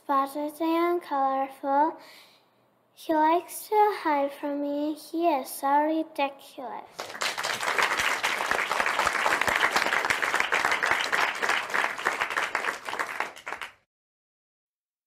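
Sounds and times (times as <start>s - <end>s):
crowd applause: 7.0s - 13.8s.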